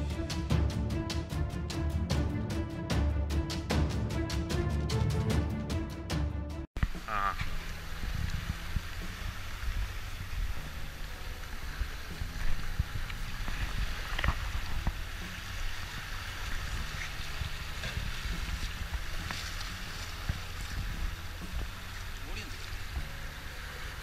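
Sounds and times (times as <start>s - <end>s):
small waves washing on shore: 6.8s - 24.0s
feet splashing in shallow water: 7.5s - 24.0s
wind buffeting microphone: 7.5s - 24.0s.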